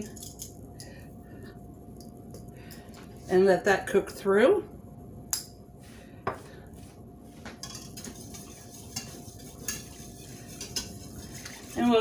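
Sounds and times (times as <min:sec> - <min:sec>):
whisk clicking against saucepan: 0:07.6 - 0:12.0.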